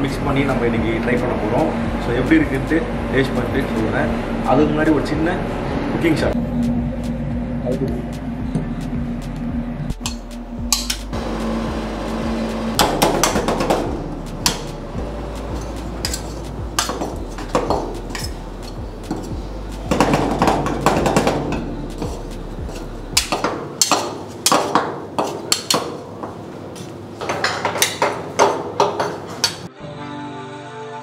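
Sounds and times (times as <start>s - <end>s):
low hum: 0.0s - 23.4s
metal spatulas tapping on cold plate: 23.2s - 26.0s.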